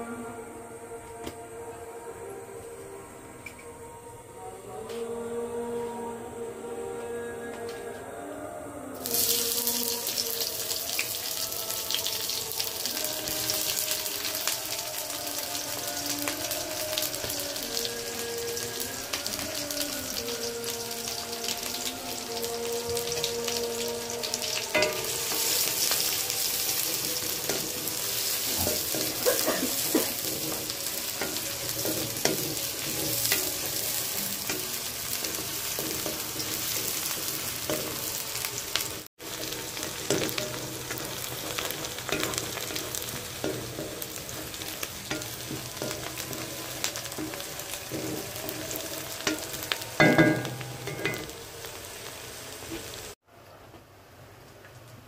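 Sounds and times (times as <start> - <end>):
onions sizzling in hot oil: 9.0 - 53.2
spatula scraping a wok: 24.7 - 53.2.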